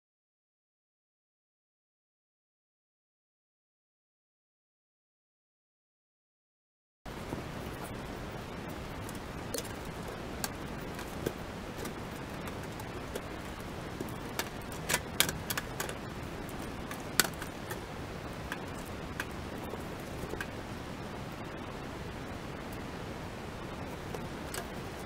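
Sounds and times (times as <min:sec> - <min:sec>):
steady hiss: 0:07.1 - 0:25.0.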